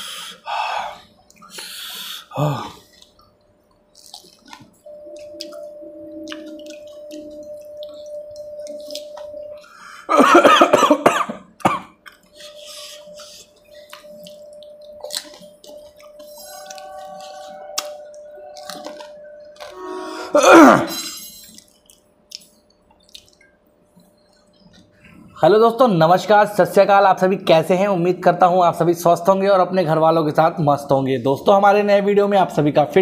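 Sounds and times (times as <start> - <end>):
wet mouth noises: 2.5 - 9.6, 21.4 - 25.2
crisp shells cracking while eating: 2.8 - 4.8, 13.5 - 19.8
faint steady tone: 4.8 - 11.1, 12.2 - 21.6
loud cough: 10.1 - 12.0, 20.4 - 21.1.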